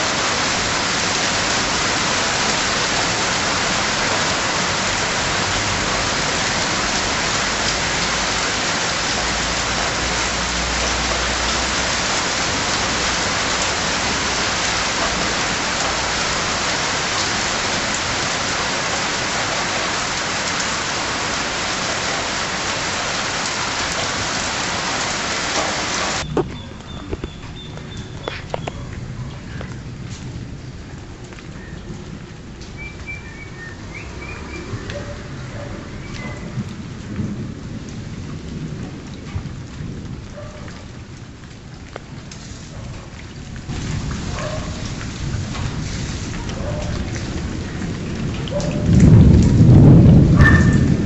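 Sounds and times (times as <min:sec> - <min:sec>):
heavy rain pouring: 0:00.0 - 0:51.0
thunder rumbling: 0:25.8 - 0:32.3, 0:43.7 - 0:51.0.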